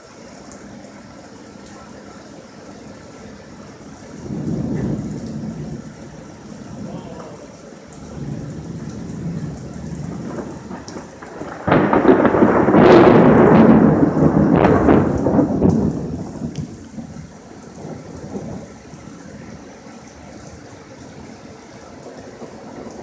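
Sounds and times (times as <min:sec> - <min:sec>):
rain hissing: 0:00.0 - 0:23.0
thunder cracking and rumbling: 0:03.9 - 0:19.7, 0:21.9 - 0:23.0.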